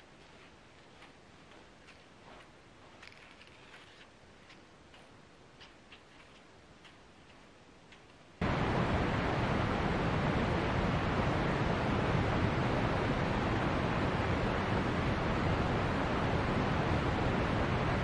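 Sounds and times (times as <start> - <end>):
creek rushing: 8.4 - 18.0.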